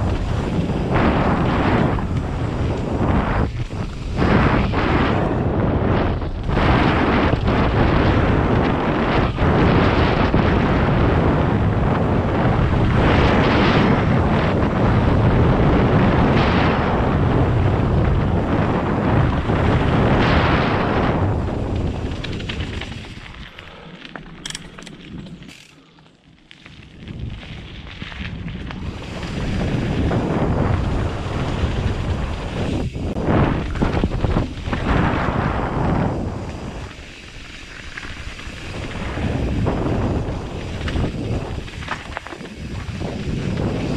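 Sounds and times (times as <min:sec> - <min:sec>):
wind buffeting microphone: 0:00.0 - 0:23.8, 0:26.9 - 0:43.9
tyres rumbling over dirt: 0:00.0 - 0:43.9
sharp clicks: 0:24.2 - 0:26.0.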